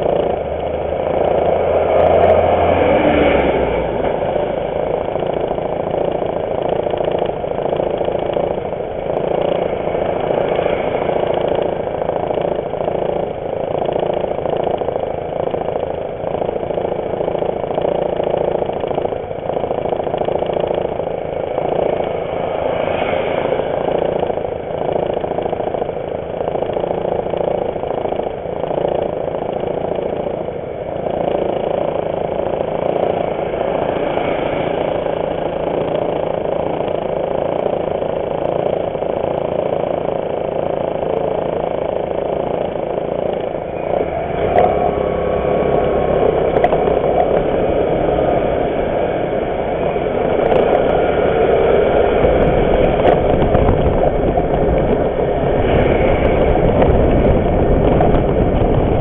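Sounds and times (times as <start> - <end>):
scooter engine idling: 0.0 - 59.0
truck engine idling: 3.6 - 59.0.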